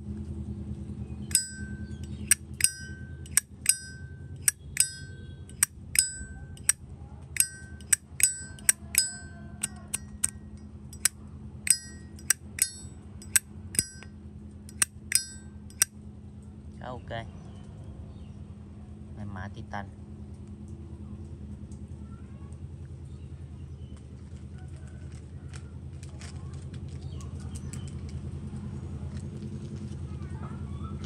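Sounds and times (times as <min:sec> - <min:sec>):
lighter lid clicking and ringing: 0:01.3 - 0:06.8, 0:07.4 - 0:10.4, 0:11.7 - 0:14.0, 0:14.7 - 0:15.9.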